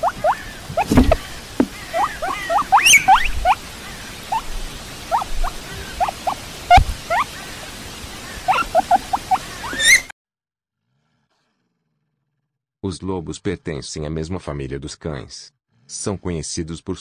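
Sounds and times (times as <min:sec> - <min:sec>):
guinea pig squeaking: 0:00.0 - 0:01.1, 0:01.7 - 0:03.6, 0:05.1 - 0:07.3, 0:08.5 - 0:10.1.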